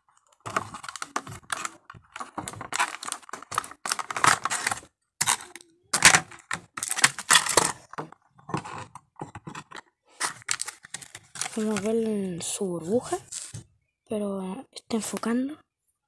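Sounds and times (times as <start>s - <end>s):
plastic packaging crinkling: 0.0s - 8.9s, 9.6s - 12.1s, 13.1s - 13.6s.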